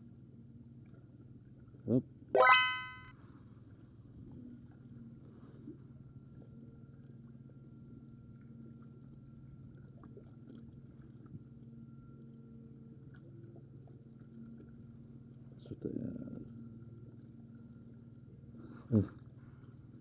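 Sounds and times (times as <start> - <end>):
thin high tone: 2.4 - 3.1
faint low motor hum: 3.7 - 20.0.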